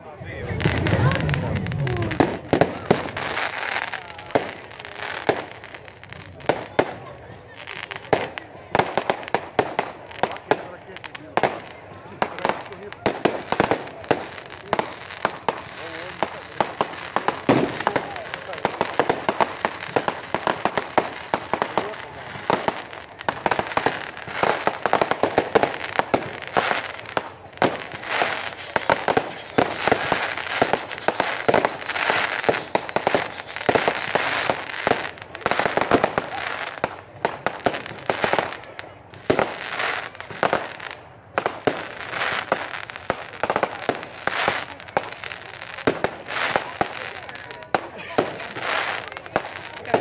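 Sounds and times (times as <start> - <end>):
fireworks and firecrackers banging: 0.0 - 50.0.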